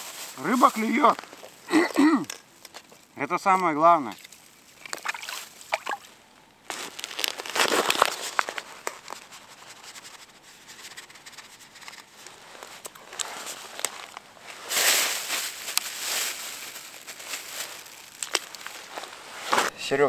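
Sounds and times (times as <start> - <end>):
plastic bag crinkling: 6.7 - 9.8, 12.1 - 19.2.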